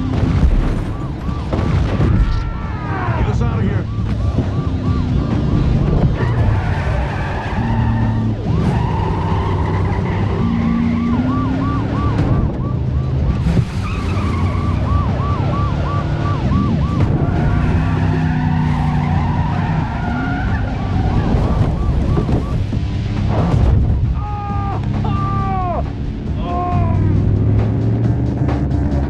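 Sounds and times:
car engines running hard: 0:00.0 - 0:29.0
tyres skidding: 0:00.0 - 0:29.0
police siren yelping: 0:00.4 - 0:22.8.

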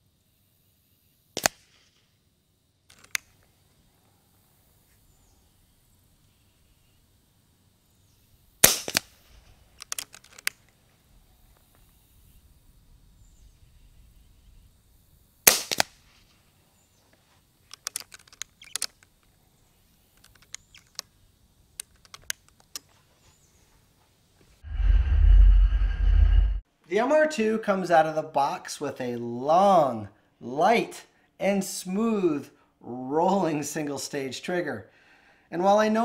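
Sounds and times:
muffled air rifle shots: 0:08.6 - 0:09.4, 0:15.5 - 0:16.0
rifle action clicking: 0:09.8 - 0:10.6, 0:17.7 - 0:19.1
deep whoosh sound effect: 0:24.6 - 0:26.6.

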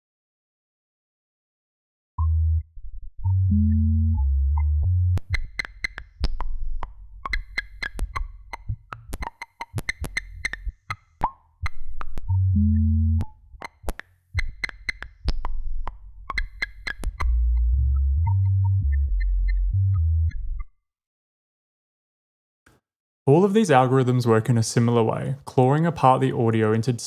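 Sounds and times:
low synth bass note: 0:02.2 - 0:05.3, 0:12.2 - 0:13.3, 0:17.2 - 0:20.6
deep melodic bass line: 0:02.2 - 0:20.7.

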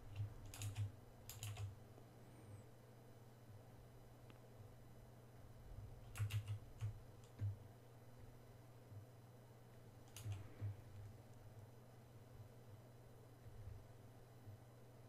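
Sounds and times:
faint low hum: 0:00.0 - 0:15.0
keyboard keys clicking: 0:00.1 - 0:01.7, 0:06.0 - 0:07.6, 0:10.0 - 0:10.5.

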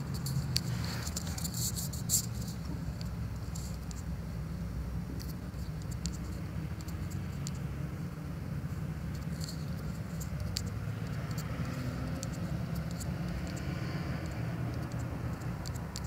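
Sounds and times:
typing on touchscreen keyboard: 0:09.0 - 0:16.0.

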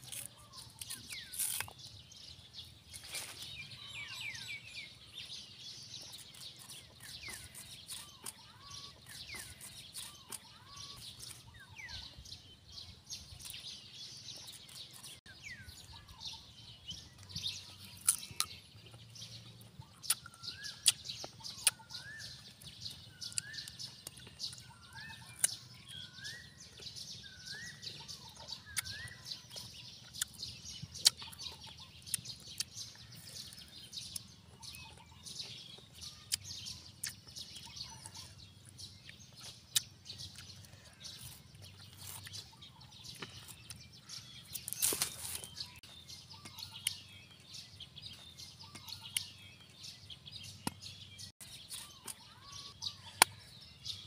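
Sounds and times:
crisp mango being bitten: 0:00.0 - 0:02.3, 0:06.0 - 0:11.5, 0:17.7 - 0:19.0, 0:19.9 - 0:47.0
birds calling: 0:00.0 - 0:54.0.

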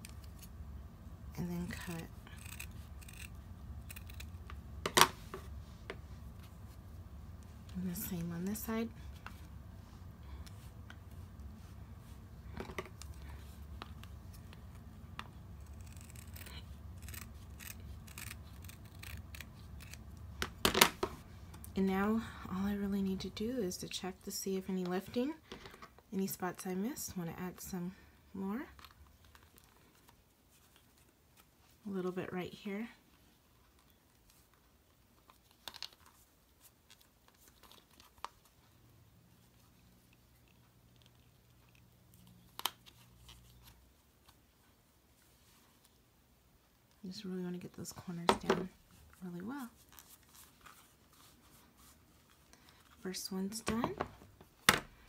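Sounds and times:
faint low hum: 0:00.0 - 0:55.0
scissors snipping fur: 0:01.6 - 0:04.6, 0:15.6 - 0:20.2.

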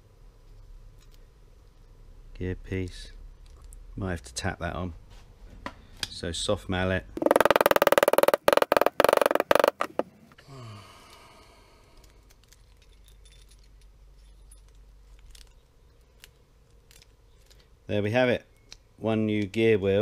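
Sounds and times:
handling of metal parts: 0:12.0 - 0:17.7.

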